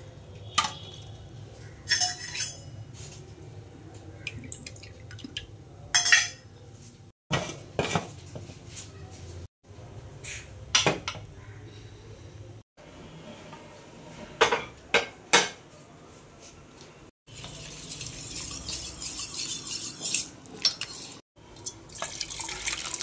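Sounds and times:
metal cookware clinking: 1.7s - 2.8s, 5.9s - 6.5s.

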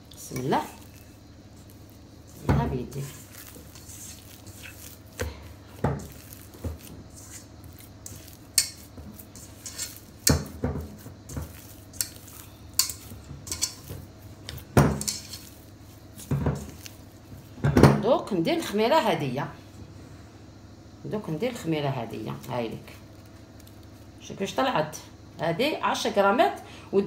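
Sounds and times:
dough squishing: 0.0s - 17.6s.

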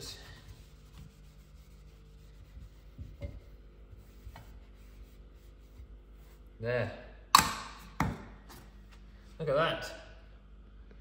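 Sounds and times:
hand rubbing metal: 0.0s - 6.5s.

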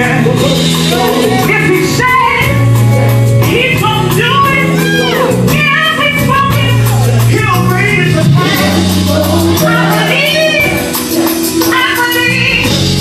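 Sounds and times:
gospel band playing: 0.0s - 13.0s
people singing: 8.0s - 11.9s.

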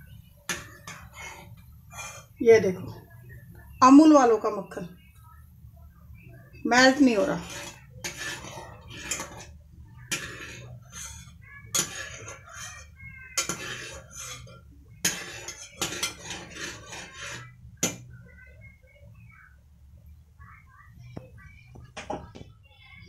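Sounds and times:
metal utensil clinking on pot: 7.4s - 9.5s, 10.1s - 18.1s.

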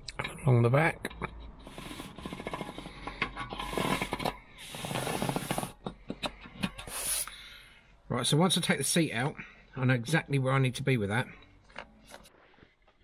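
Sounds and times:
marker pen scratching on floor: 1.6s - 2.9s, 3.6s - 5.8s.

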